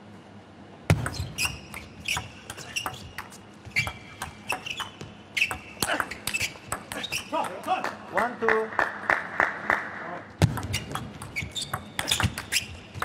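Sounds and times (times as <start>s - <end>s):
shoes squeaking on floor: 1.0s - 7.5s, 10.6s - 13.0s.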